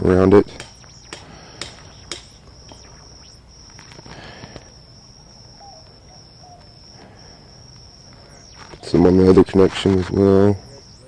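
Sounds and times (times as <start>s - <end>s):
faint outdoor ambience: 0.0s - 11.0s
insect trilling: 0.0s - 11.0s
wire connections clicking: 0.3s - 4.8s.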